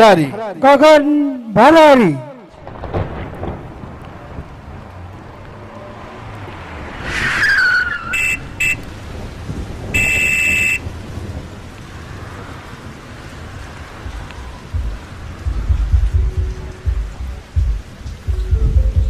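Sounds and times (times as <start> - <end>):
long beep: 10.0 - 10.8
low rumble: 13.4 - 19.0.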